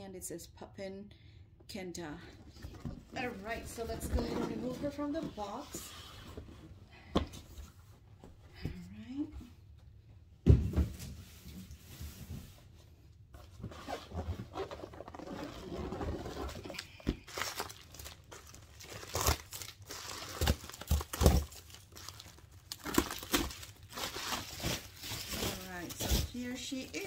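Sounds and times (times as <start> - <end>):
packaging crinkling and rustling: 13.8 - 27.0.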